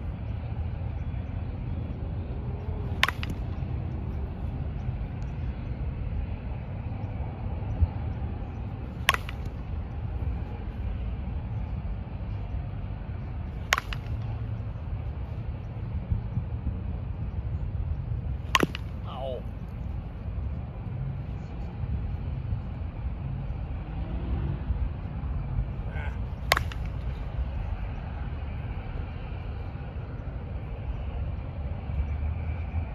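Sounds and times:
low steady rumble: 0:00.0 - 0:32.9
bat striking ball: 0:02.8 - 0:04.2, 0:08.8 - 0:10.0, 0:13.4 - 0:14.6, 0:18.3 - 0:19.3, 0:26.3 - 0:27.3.

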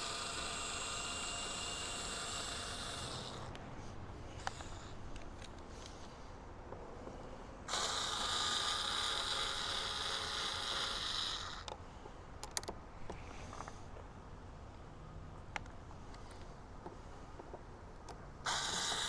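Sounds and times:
electric screwdriver running: 0:00.0 - 0:03.5, 0:07.7 - 0:11.6, 0:18.5 - 0:19.0
small clicks: 0:12.4 - 0:13.8.

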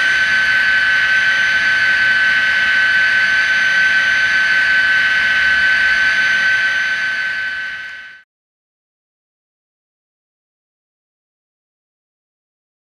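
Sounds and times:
model locomotive engine whine: 0:00.0 - 0:08.2.

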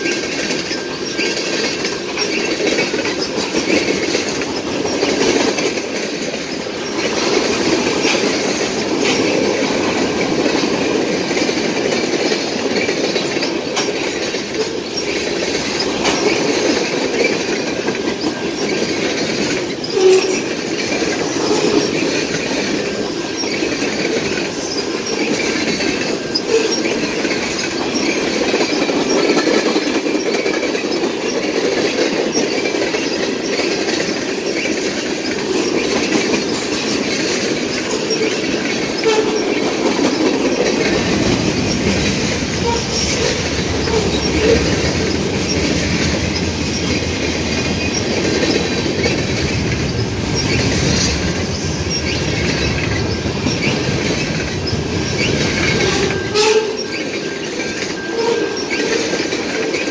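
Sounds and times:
train wheels rumbling on rails: 0:00.0 - 0:59.9
wheels clacking: 0:00.0 - 0:59.9
faint high wheel squeal: 0:19.8 - 0:20.6, 0:24.7 - 0:28.2, 0:55.0 - 0:59.3.

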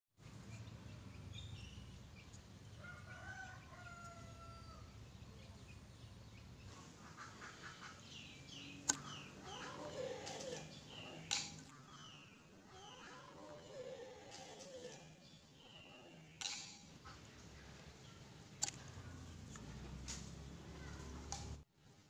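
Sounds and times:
small birds chirping: 0:00.2 - 0:21.6
rooster crowing: 0:02.8 - 0:04.9.

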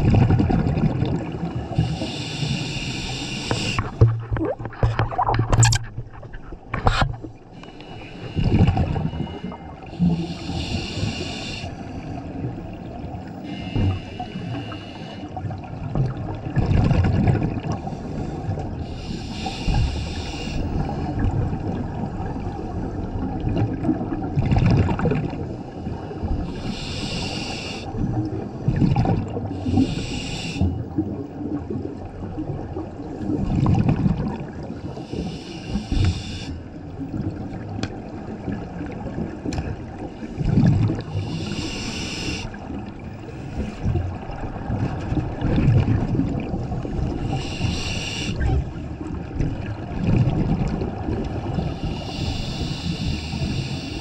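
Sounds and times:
hissing regulator inhalation: 0:01.7 - 0:04.0, 0:07.6 - 0:12.2, 0:13.4 - 0:15.3, 0:18.0 - 0:20.7, 0:26.5 - 0:27.9, 0:29.6 - 0:30.8, 0:35.0 - 0:36.6, 0:41.1 - 0:42.6, 0:47.2 - 0:48.5, 0:51.6 - 0:54.0
bubbling exhaled air: 0:07.6 - 0:12.4, 0:38.8 - 0:54.0.

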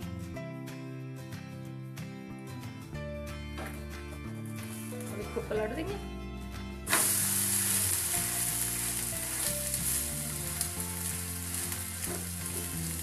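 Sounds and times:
batter sizzling in oil: 0:06.9 - 0:13.0.

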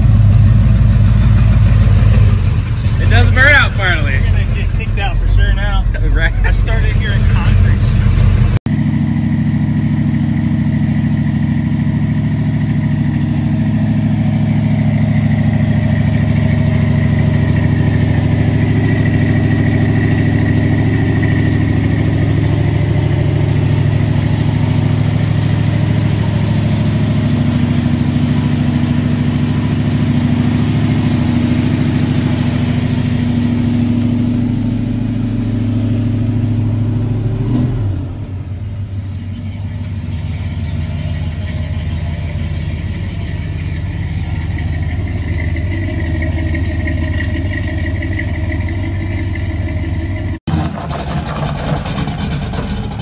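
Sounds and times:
pickup truck engine idling: 0:00.0 - 0:37.4, 0:38.2 - 0:53.0.

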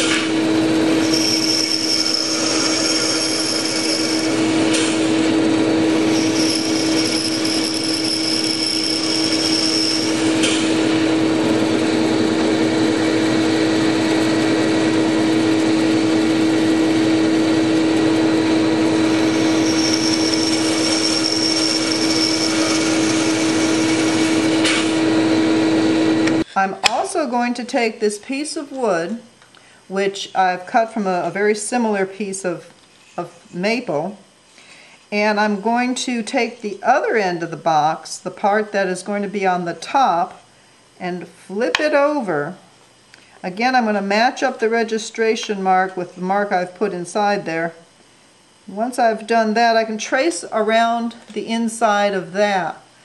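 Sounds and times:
bandsaw motor hum: 0:00.0 - 0:26.5.

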